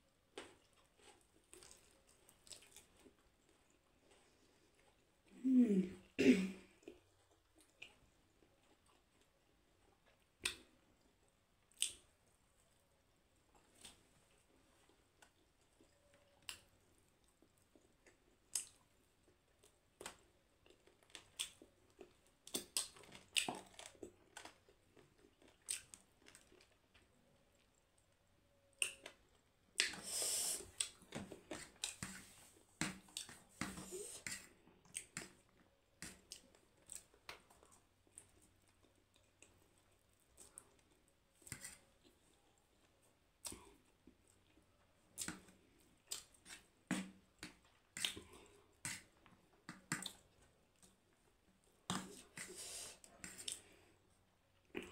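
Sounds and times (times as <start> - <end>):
chewing and mouth smacks: 0.3 - 5.2, 6.8 - 12.8, 13.4 - 28.1, 30.6 - 51.0, 51.6 - 53.9
noodles stirred with fork: 51.9 - 53.9.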